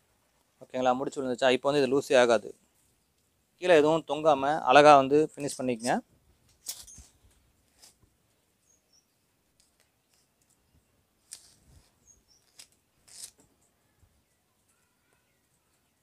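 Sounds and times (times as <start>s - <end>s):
net and rope rustling: 6.4s - 8.3s, 9.6s - 14.0s
bird chirping: 8.3s - 11.1s, 11.8s - 16.0s.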